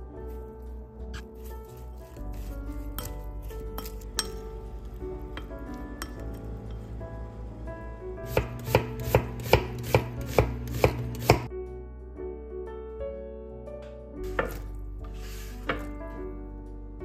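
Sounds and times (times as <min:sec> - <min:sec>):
knife chopping on wooden board: 0:08.3 - 0:11.5.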